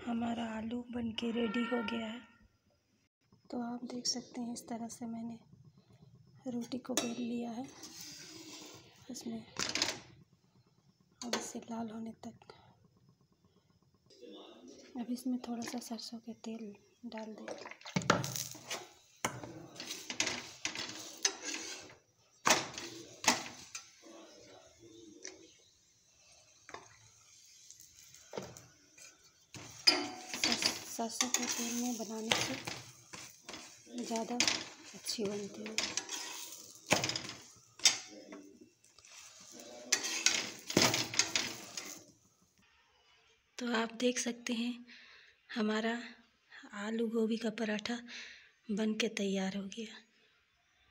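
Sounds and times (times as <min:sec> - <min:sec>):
metal spatula clanking: 0:06.9 - 0:08.8, 0:18.1 - 0:25.6, 0:26.2 - 0:42.1
spatula scraping on griddle: 0:07.0 - 0:09.1, 0:18.2 - 0:42.1.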